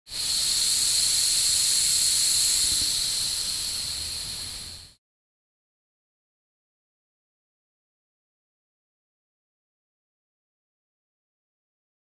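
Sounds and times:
gas hissing from torch: 0:00.1 - 0:05.0.

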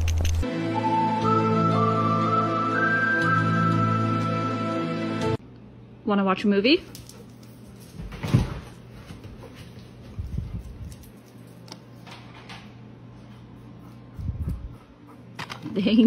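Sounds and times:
steady low hum: 0:08.6 - 0:16.0.

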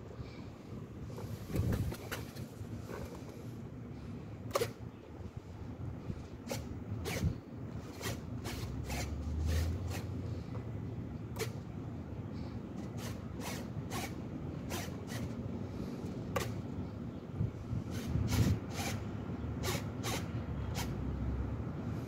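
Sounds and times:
low wind rumble: 0:00.0 - 0:07.9, 0:15.4 - 0:19.6.

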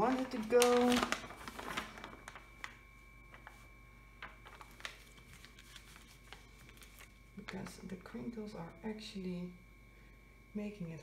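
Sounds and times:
hand smoothing plastic film: 0:00.0 - 0:03.6, 0:04.2 - 0:07.1
faint steady high tone: 0:00.0 - 0:11.0.

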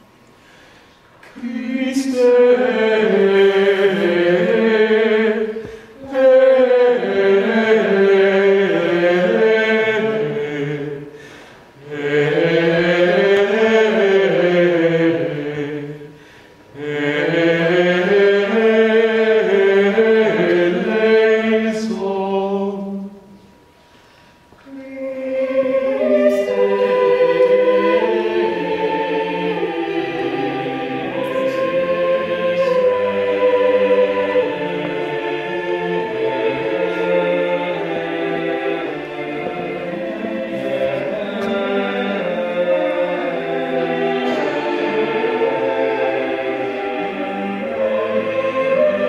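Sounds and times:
choir singing plainchant: 0:01.2 - 0:23.4, 0:24.6 - 0:49.0.

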